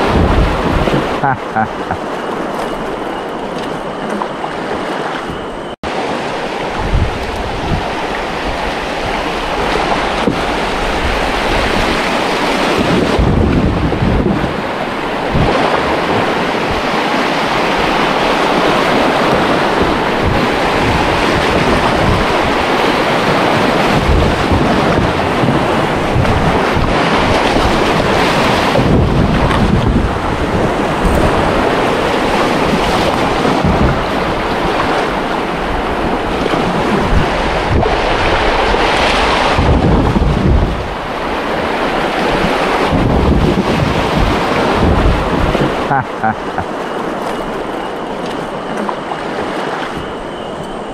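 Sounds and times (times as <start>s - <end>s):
river water rushing: 0.0s - 29.4s, 30.0s - 50.9s
wind buffeting microphone: 0.0s - 50.9s.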